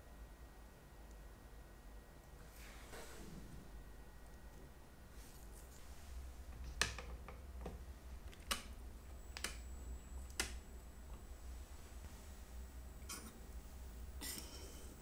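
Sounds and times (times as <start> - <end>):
low steady hum: 0.0 - 15.0
sharp small clicks: 8.3 - 10.7.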